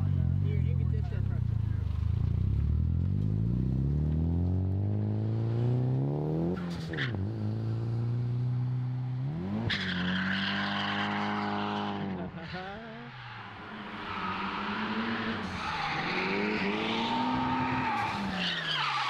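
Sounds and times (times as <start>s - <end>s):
car engine revving: 0.0s - 19.0s
tyres squealing: 13.0s - 19.0s.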